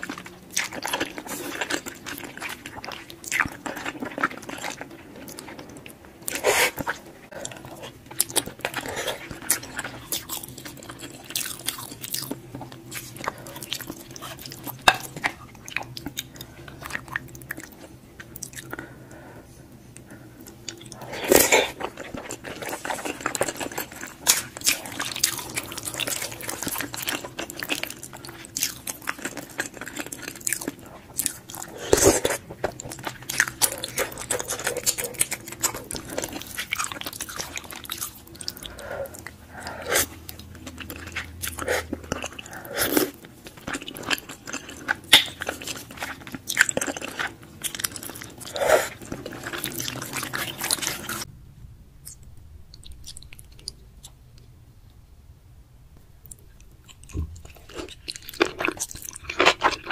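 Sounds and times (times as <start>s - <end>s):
wet chewing and mouth smacks: 20.4s - 51.3s, 52.0s - 54.5s, 56.2s - 59.9s.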